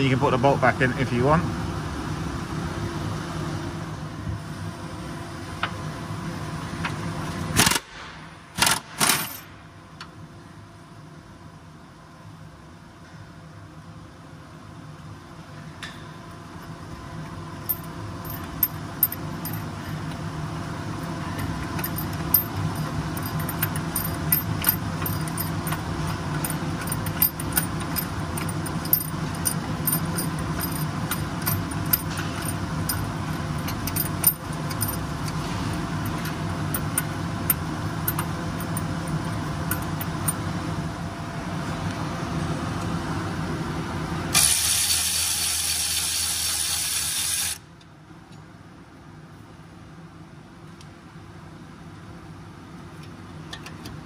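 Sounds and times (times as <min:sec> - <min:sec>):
socket clinking on bolts: 0:21.4 - 0:35.4, 0:36.0 - 0:40.4.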